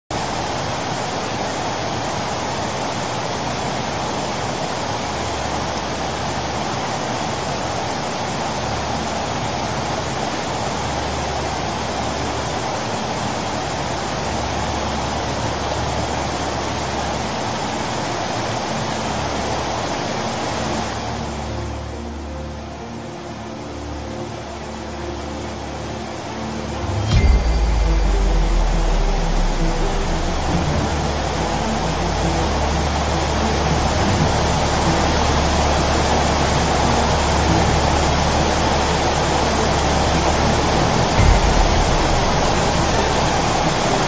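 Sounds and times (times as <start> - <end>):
flooded river rushing: 0.2 - 44.0
low rumble: 26.4 - 38.7, 39.5 - 44.0.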